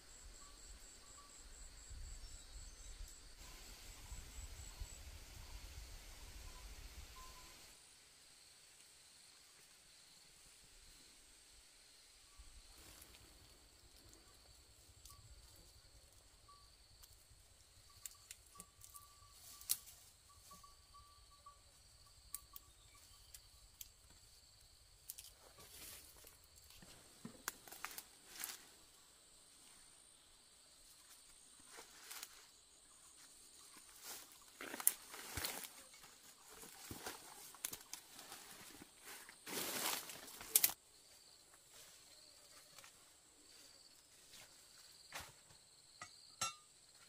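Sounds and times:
insects calling: 0:00.0 - 0:07.8, 0:08.4 - 0:26.7.

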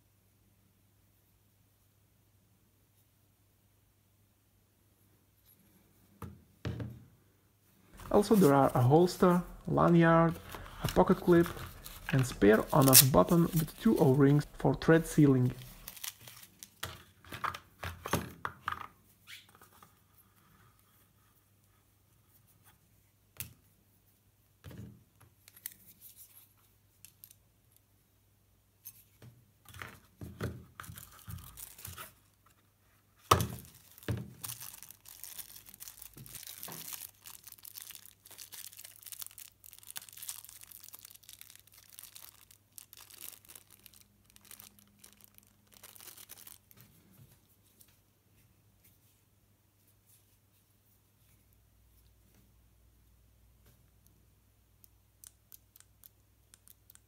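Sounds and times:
packaging rustling and crinkling: 0:07.9 - 0:17.6, 0:30.8 - 0:32.6, 0:33.2 - 0:47.5.

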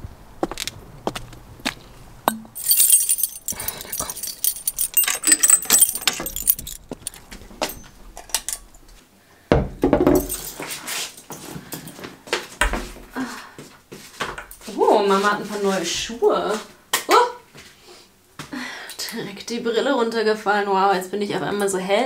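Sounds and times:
keys jangling: 0:02.5 - 0:08.7, 0:10.2 - 0:11.9.

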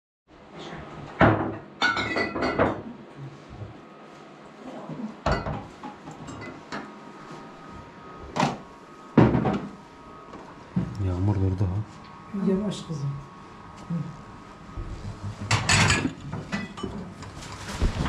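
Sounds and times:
dishes clinking: 0:01.3 - 0:02.9, 0:05.2 - 0:06.8, 0:15.4 - 0:17.2.

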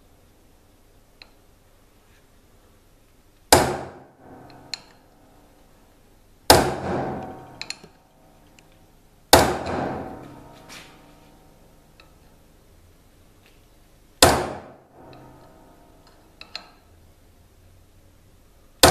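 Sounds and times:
hammer striking steel chisel: 0:03.5 - 0:05.2, 0:06.5 - 0:08.0, 0:09.3 - 0:11.3, 0:14.2 - 0:16.8.

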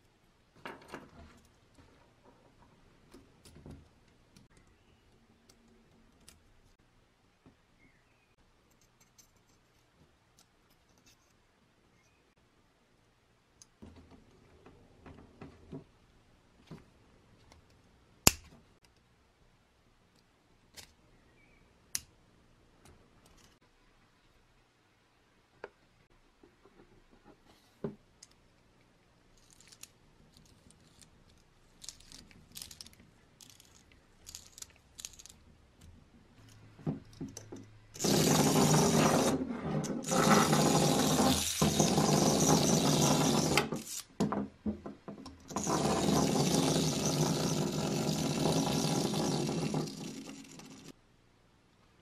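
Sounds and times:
toy motor gears whirring: 0:31.8 - 0:35.4, 0:38.0 - 0:39.4, 0:40.0 - 0:44.1, 0:45.5 - 0:50.9.

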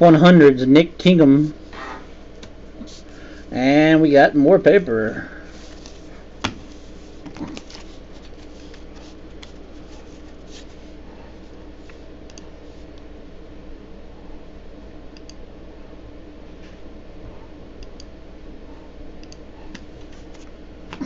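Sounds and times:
steady low hum: 0:00.0 - 0:21.0
cards shuffled by hand: 0:05.5 - 0:10.9.

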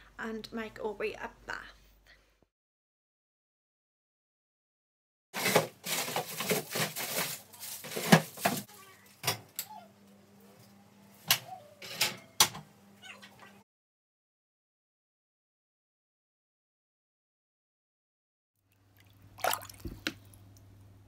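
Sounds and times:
rustling and clattering: 0:05.4 - 0:09.4.

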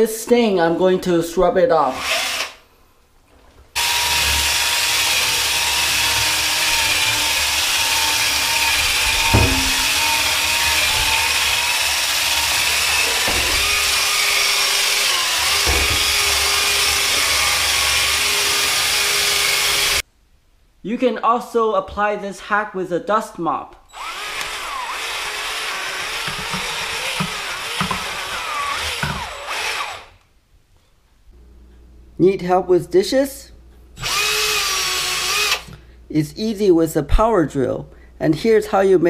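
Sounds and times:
drill motor whine: 0:03.8 - 0:20.0, 0:23.9 - 0:30.1, 0:34.0 - 0:35.7
knock: 0:09.1 - 0:10.2.

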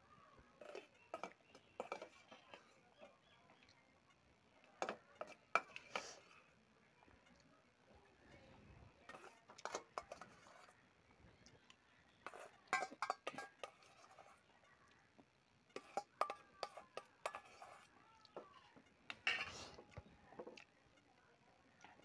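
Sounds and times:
spoon scraping a metal bowl: 0:00.6 - 0:03.1, 0:09.0 - 0:10.8, 0:12.2 - 0:14.5, 0:15.7 - 0:17.9, 0:19.1 - 0:19.8.

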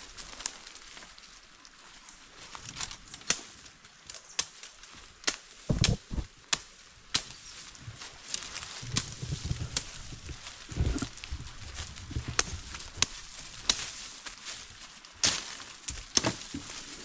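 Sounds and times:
hand tool chopping into ground: 0:05.3 - 0:07.3, 0:15.2 - 0:16.8
heavy thuds: 0:05.7 - 0:06.3.

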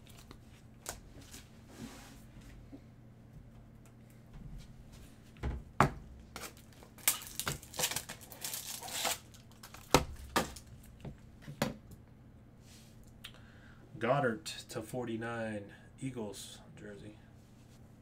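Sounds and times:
plastic packaging crinkling: 0:06.2 - 0:11.0.

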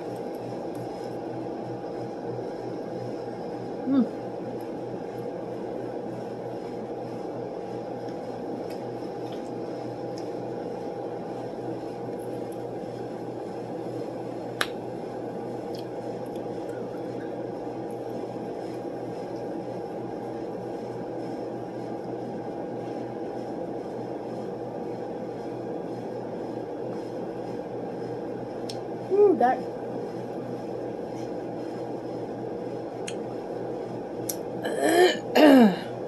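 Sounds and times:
room machinery hum: 0:00.0 - 0:36.0
eating and mouth sounds: 0:08.0 - 0:10.4.

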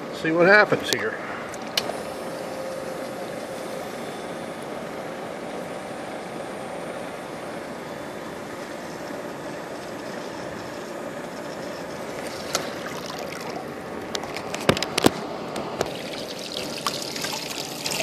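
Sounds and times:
water pouring and splashing from hose: 0:15.9 - 0:18.0.

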